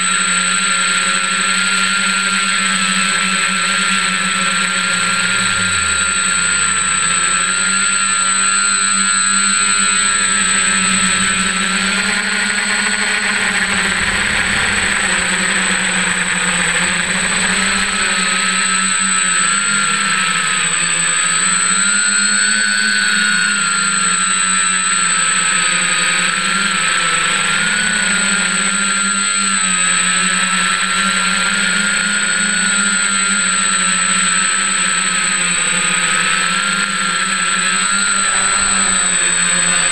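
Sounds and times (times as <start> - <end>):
thin constant high whine: 0.0 - 39.9
drone propellers buzzing: 0.3 - 8.7, 9.4 - 20.7, 35.0 - 39.9.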